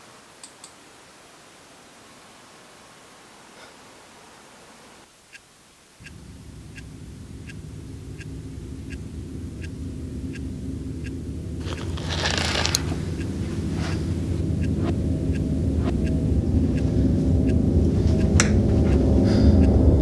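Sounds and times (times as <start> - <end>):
clock ticking: 5.3 - 11.8, 12.4 - 20.0
low sustained drone: 6.1 - 20.0.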